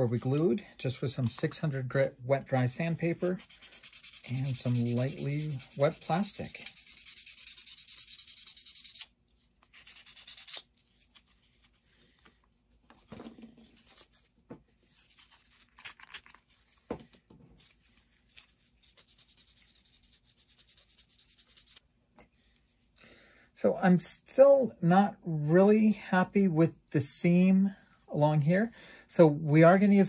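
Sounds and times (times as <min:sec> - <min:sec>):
sandpaper rubbing on plastic: 0:02.9 - 0:09.1, 0:09.7 - 0:10.7, 0:18.3 - 0:21.8.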